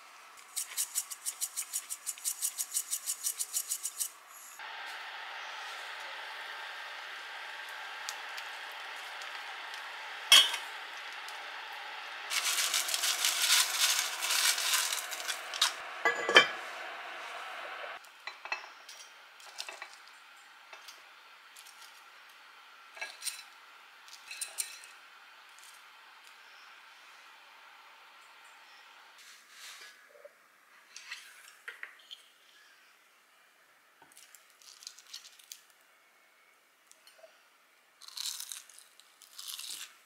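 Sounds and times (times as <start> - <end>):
utensil scraping in pot: 0.4 - 4.6
metal pot lid clanking: 10.3 - 10.6, 16.0 - 16.6.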